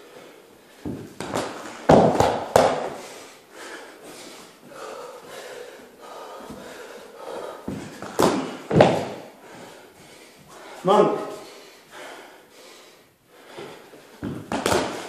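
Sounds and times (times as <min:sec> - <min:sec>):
hard breathing: 0:02.9 - 0:14.2
body falling on carpeted floor: 0:07.7 - 0:09.2
kick thudding into training dummy: 0:07.7 - 0:09.2.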